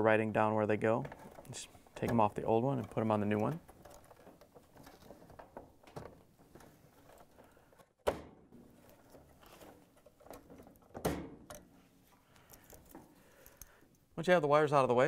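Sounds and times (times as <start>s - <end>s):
wires rustling: 0.7s - 8.0s, 8.6s - 11.0s, 11.6s - 14.2s.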